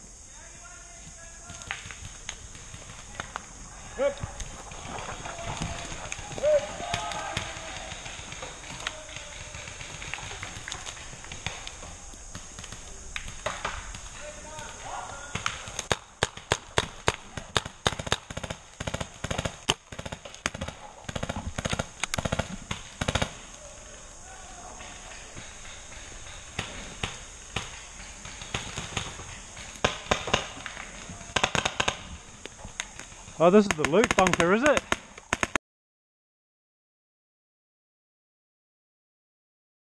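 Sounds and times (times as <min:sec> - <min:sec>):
steady high hiss: 0:00.0 - 0:35.6
sharp pops and snaps: 0:01.4 - 0:03.5, 0:05.6 - 0:23.6, 0:24.8 - 0:35.6
paintball markers firing: 0:04.3 - 0:23.5, 0:24.8 - 0:35.6.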